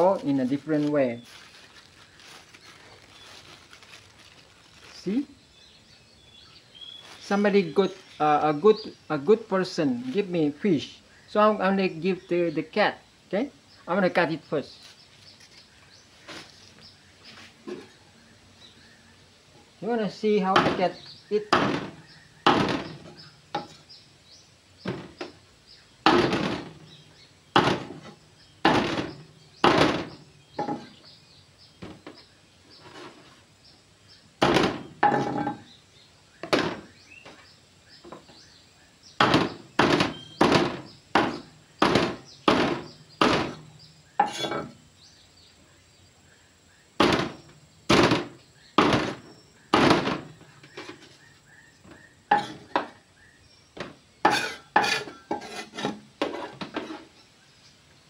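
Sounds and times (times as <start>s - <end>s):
cleaver chopping on wooden board: 21.5s - 23.8s, 26.1s - 26.7s, 27.6s - 30.9s, 34.4s - 35.5s, 39.2s - 43.6s.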